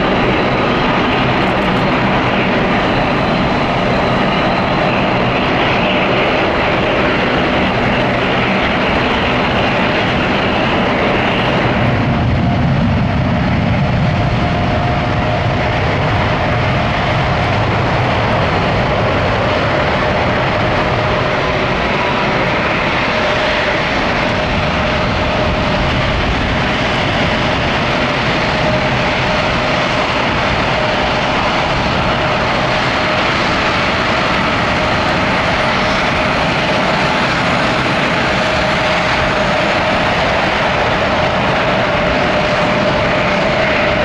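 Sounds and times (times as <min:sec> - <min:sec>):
jet engines running: 0:00.0 - 0:44.0.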